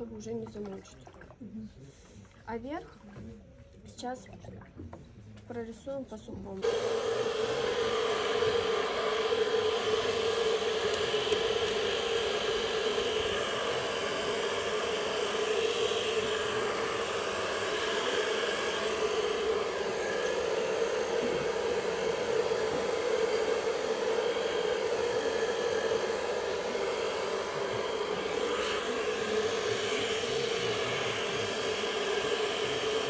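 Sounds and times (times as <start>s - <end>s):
hair dryer blowing air: 6.6s - 33.0s.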